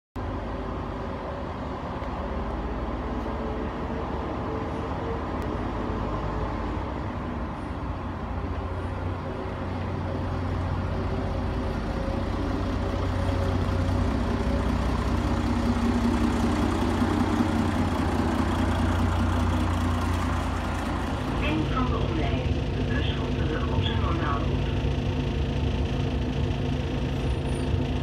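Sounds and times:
diesel bus engine humming: 0:00.2 - 0:28.0.

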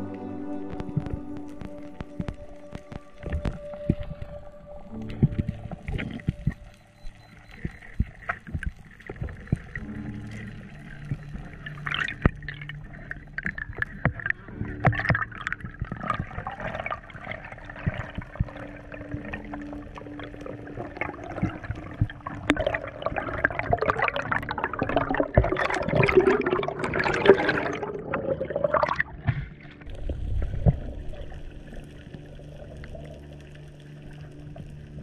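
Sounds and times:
water gurgling and rushing: 0:00.0 - 0:35.0
clicks underwater: 0:04.9 - 0:33.2.

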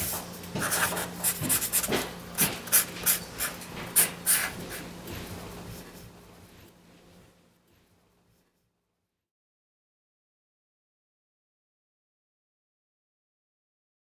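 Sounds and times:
marker scratching on paper: 0:00.6 - 0:06.5.

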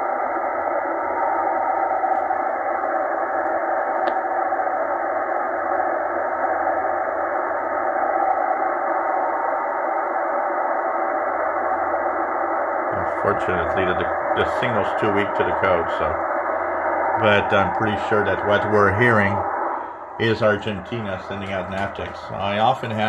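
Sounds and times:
weak data signal tones: 0:07.8 - 0:23.0
radio static: 0:12.0 - 0:23.0.

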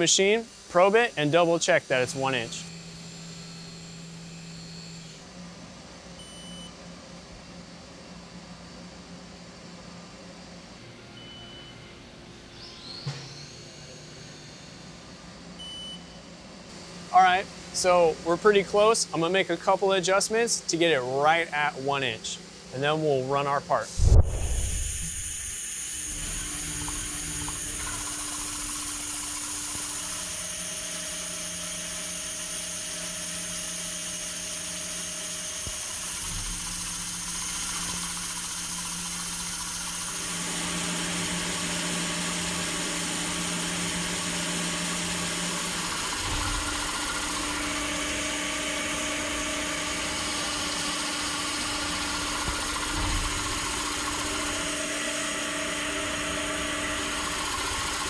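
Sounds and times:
machine hum: 0:00.0 - 0:05.4, 0:11.2 - 0:15.8, 0:23.8 - 0:58.0.

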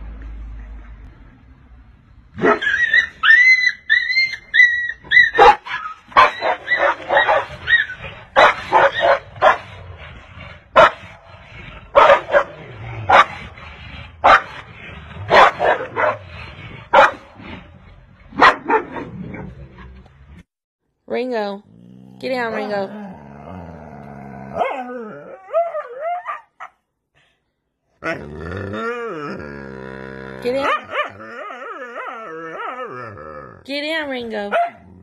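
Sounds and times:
dogs yelping and barking: 0:02.4 - 0:09.9, 0:10.7 - 0:13.6, 0:24.4 - 0:26.8, 0:30.4 - 0:33.2.

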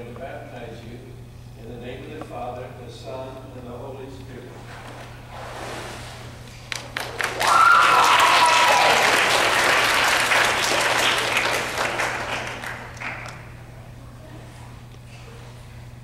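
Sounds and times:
congregation applauding: 0:06.7 - 0:13.6.

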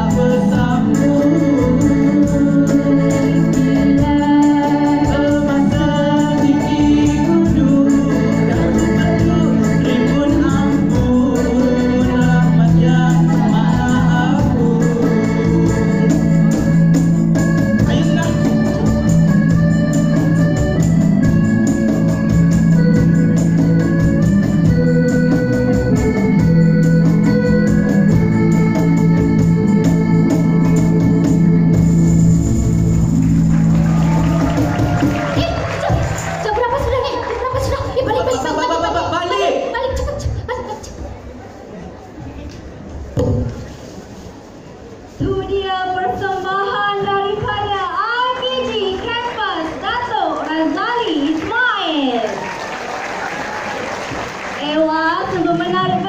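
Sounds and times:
person singing: 0:00.0 - 0:16.8
keyboard playing organ chords: 0:00.0 - 0:39.0.

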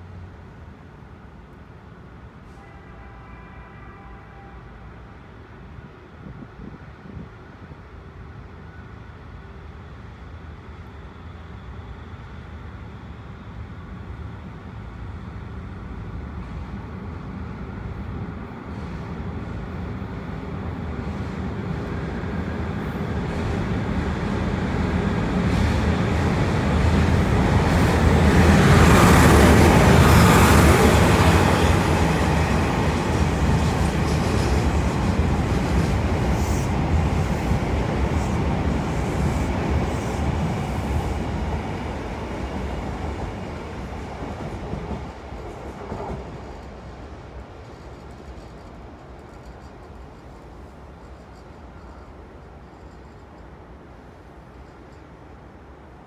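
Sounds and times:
diesel locomotive engine drone: 0:00.0 - 0:56.0
train wheels rolling: 0:20.8 - 0:55.2.

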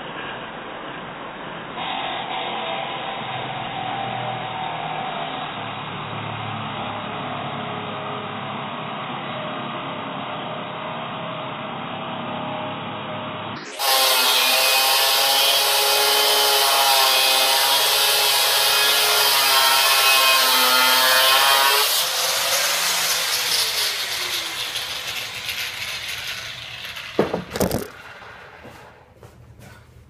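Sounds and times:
angle grinder cutting steel: 0:13.6 - 0:28.8
sharp knocks: 0:27.2 - 0:28.9.

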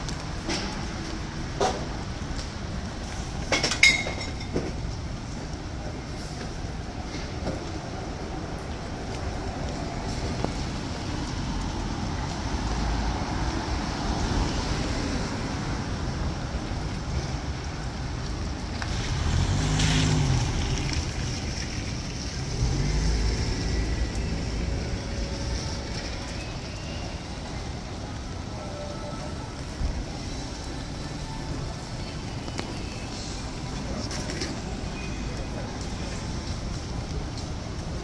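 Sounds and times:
street traffic hiss and rumble: 0:00.0 - 0:38.0.

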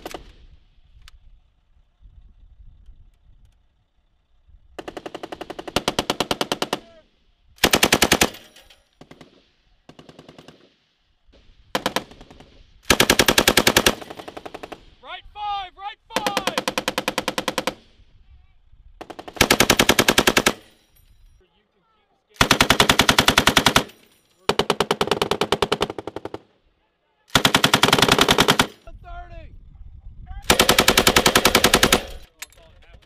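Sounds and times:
machine gun bursts: 0:04.8 - 0:07.0, 0:07.6 - 0:10.7, 0:11.7 - 0:14.9, 0:16.2 - 0:18.0, 0:19.0 - 0:20.8, 0:22.4 - 0:26.5, 0:27.3 - 0:28.9, 0:30.5 - 0:32.4.

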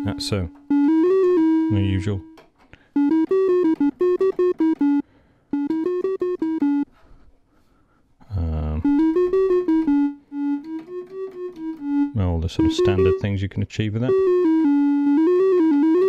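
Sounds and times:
analogue synthesizer notes: 0:00.0 - 0:02.4, 0:03.0 - 0:06.9, 0:08.8 - 0:13.4, 0:14.1 - 0:16.0.

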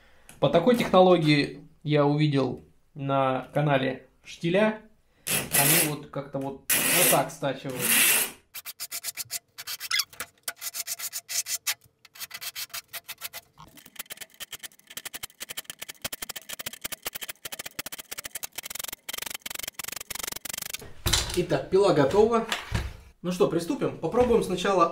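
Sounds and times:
hand files rasping on chainsaw chain: 0:06.7 - 0:14.8.

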